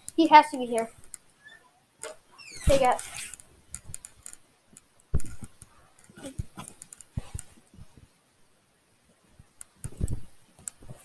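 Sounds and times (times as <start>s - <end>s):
rustling: 0.0s - 8.2s
dull thumps: 5.1s - 8.1s.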